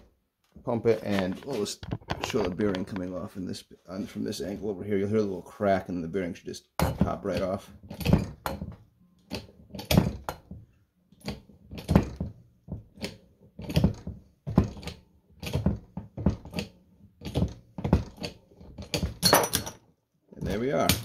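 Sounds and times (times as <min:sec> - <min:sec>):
hydraulic puller mechanical knocks: 0:06.8 - 0:08.8, 0:11.2 - 0:19.6.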